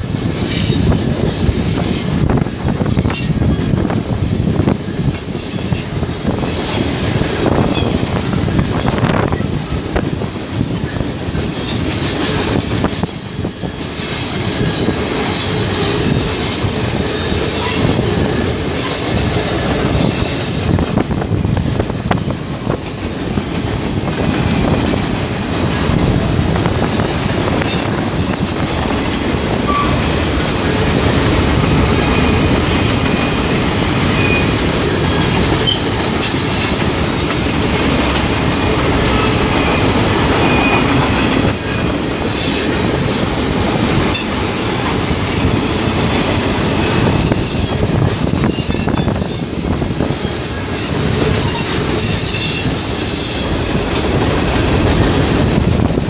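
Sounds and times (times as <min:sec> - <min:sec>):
train wheels rumbling on rail: 0:00.0 - 0:56.0
high wheel squeals: 0:12.9 - 0:21.0, 0:31.9 - 0:33.5, 0:34.1 - 0:46.0.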